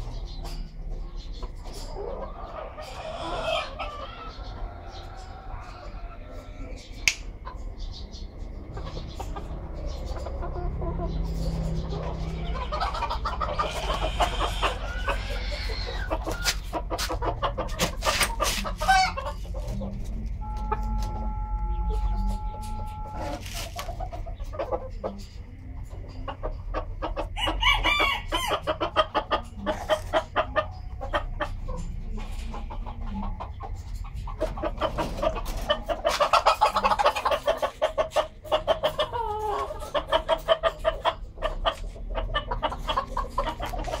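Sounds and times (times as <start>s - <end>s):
chickens clucking: 0.0s - 44.0s
rooster crowing: 2.9s - 6.8s, 13.4s - 16.1s, 27.4s - 28.7s.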